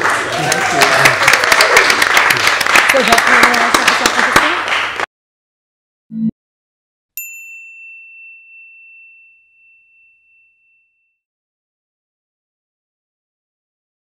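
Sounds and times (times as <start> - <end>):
people clapping: 0.0 - 5.1
bell-like ding: 7.2 - 11.3.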